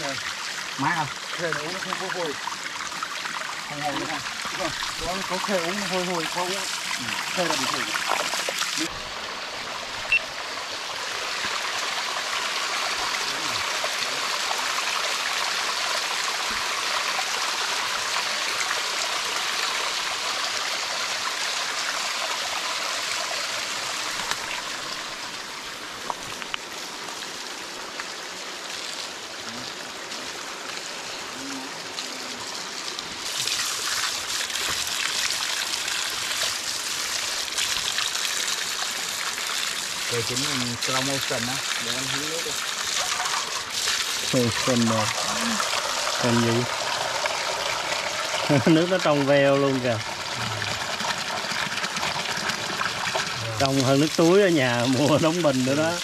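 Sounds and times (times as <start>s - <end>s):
water jet pouring onto stones: 0.0s - 9.2s, 31.9s - 56.0s
stream water splashing over rocks: 0.0s - 56.0s.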